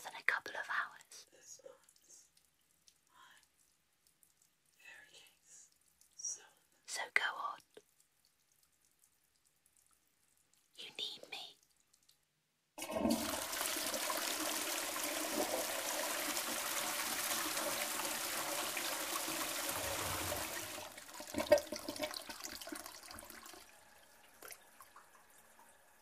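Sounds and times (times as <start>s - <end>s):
cistern gurgling and trickling: 12.8s - 25.6s
toilet flushing: 12.8s - 26.0s.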